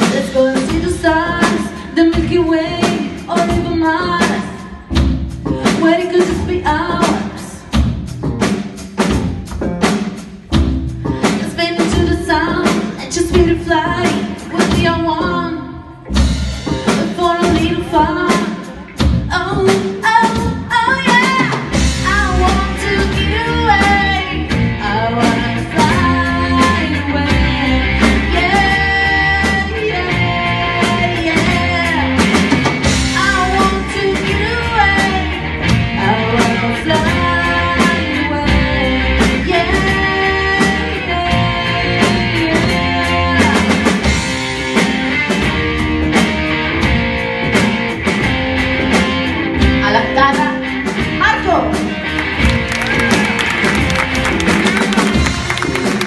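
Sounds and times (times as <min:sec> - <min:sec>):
woman singing: 0:00.0 - 0:07.8, 0:11.2 - 0:16.0, 0:16.8 - 0:44.2, 0:49.8 - 0:51.8
drum kit: 0:00.0 - 0:56.0
electric guitar: 0:00.0 - 0:56.0.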